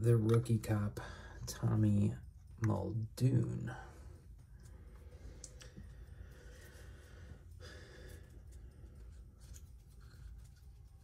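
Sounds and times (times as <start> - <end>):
low steady hum: 0.0 - 11.0
faint breathing: 1.0 - 1.6, 3.7 - 10.6.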